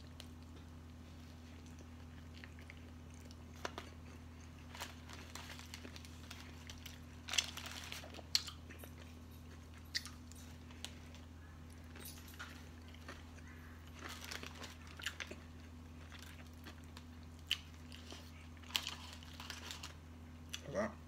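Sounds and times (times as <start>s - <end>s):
person chewing a sandwich: 0.0s - 20.6s
steady low hum: 0.0s - 21.0s
paper wrapper crinkling: 4.6s - 8.4s, 13.9s - 15.4s, 17.8s - 20.0s.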